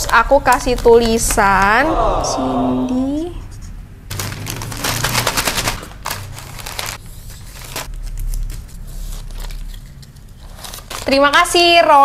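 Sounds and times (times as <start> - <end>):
plastic packaging crinkling: 0.0 - 1.4, 4.1 - 11.8.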